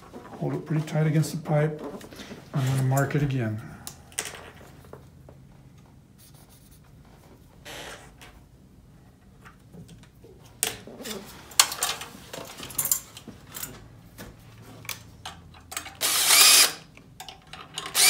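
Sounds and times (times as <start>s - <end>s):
metal parts clinking and rattling: 11.6s - 13.8s, 15.2s - 16.0s, 17.2s - 18.0s
cordless drill whining: 16.0s - 16.9s.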